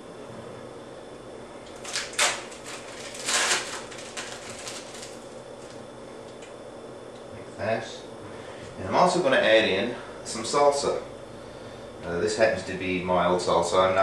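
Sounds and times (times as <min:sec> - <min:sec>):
plastic wrapper crinkling: 0:01.7 - 0:06.5.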